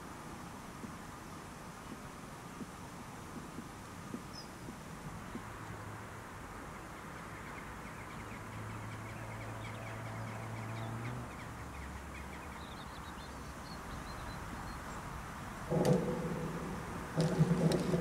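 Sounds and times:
wind noise: 0.0s - 5.6s, 14.4s - 18.0s
distant engine hum: 0.0s - 18.0s.

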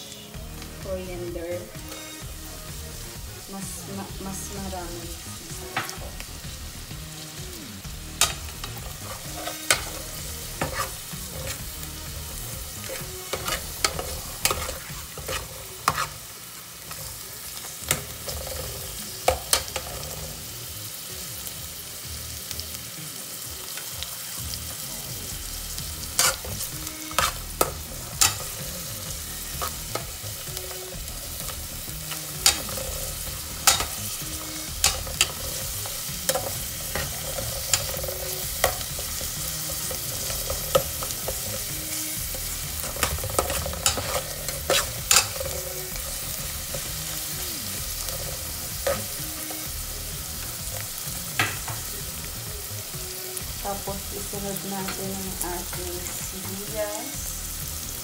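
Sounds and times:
herbs sizzling in hot oil: 0.0s - 58.0s
metal spatula scraping pot: 8.2s - 16.2s, 26.0s - 49.5s.

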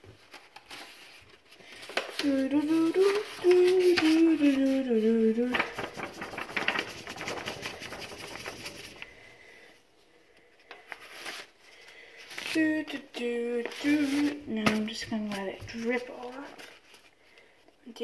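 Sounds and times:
paintbrush scrubbing on paper: 5.8s - 9.0s.

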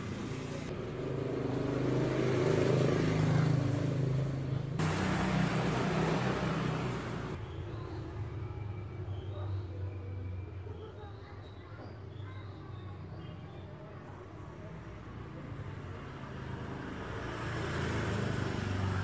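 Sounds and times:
vehicle engine humming: 0.0s - 7.4s.

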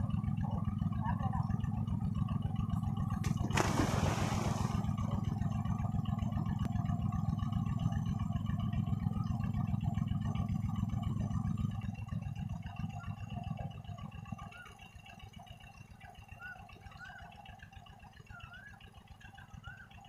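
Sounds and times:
steady low rumble: 0.0s - 14.0s
person diving into water splash: 3.2s - 5.1s.

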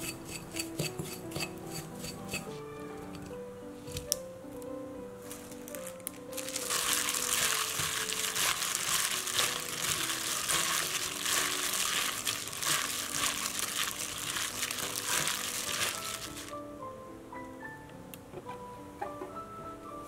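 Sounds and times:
plastic glove crinkling: 5.2s - 16.6s.

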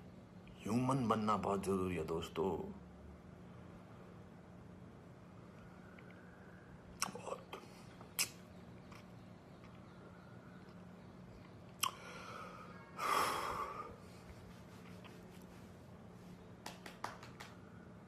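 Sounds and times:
faint steady hum: 0.0s - 18.0s
lip smacks and tongue clicks: 6.9s - 9.9s, 11.4s - 12.0s
man breathing: 11.9s - 14.4s.

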